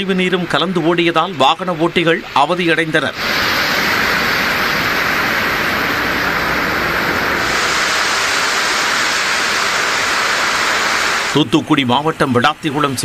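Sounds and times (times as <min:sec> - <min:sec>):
heavy rain on road: 0:03.2 - 0:11.4.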